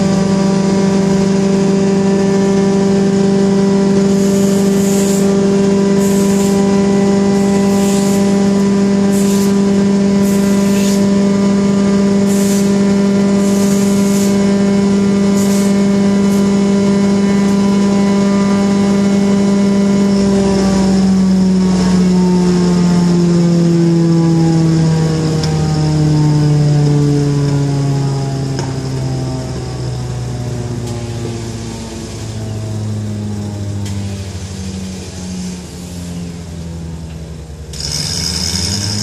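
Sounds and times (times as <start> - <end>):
wood chipper engine running: 0.0 - 39.0
rake scraping on concrete: 4.1 - 5.4, 6.0 - 6.7, 7.4 - 8.4, 9.1 - 9.6, 10.2 - 11.1, 12.3 - 12.8, 15.3 - 16.5, 37.7 - 39.0.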